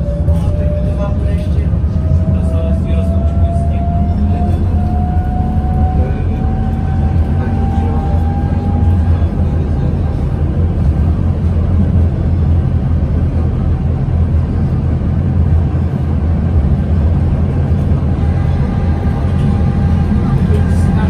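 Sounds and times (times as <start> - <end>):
tram rumbling along track: 0.0 - 21.0.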